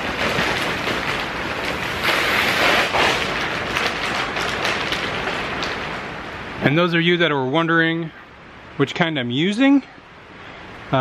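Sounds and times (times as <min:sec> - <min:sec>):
plastic wrapping rustling: 0:00.0 - 0:07.1.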